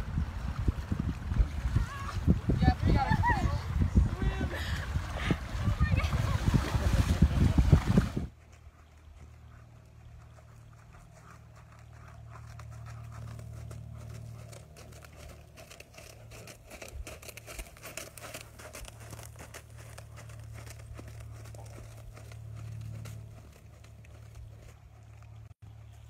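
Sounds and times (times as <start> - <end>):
horse hoofbeats on sand: 5.7 - 26.0.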